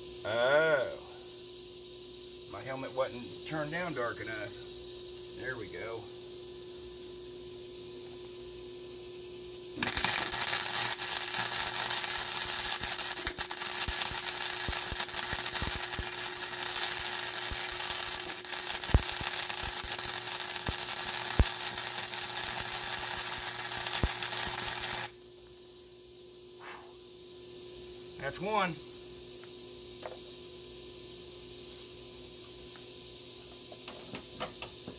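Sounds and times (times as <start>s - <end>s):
spatter pops: 9.8s - 25.2s
welding arc crackling: 9.8s - 25.2s.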